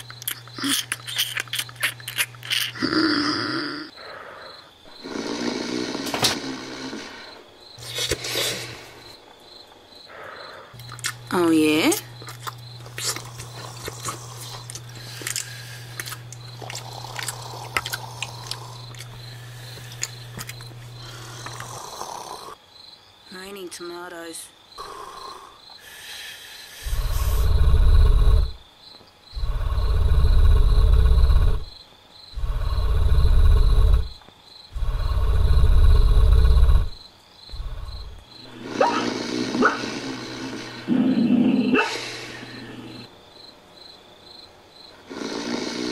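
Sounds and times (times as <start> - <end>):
loud deep snoring: 2.8 - 7.4, 16.7 - 20.3, 21.0 - 22.6, 26.8 - 28.6, 29.3 - 31.7, 32.3 - 43.1, 44.9 - 45.9
steady low hum: 8.8 - 22.6, 26.4 - 28.7, 29.3 - 43.2.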